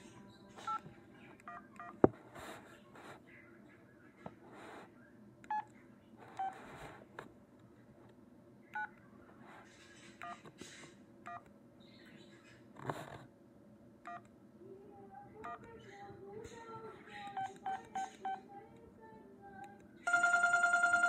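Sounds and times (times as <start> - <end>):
phone keypad beeps: 20.1 - 21.0.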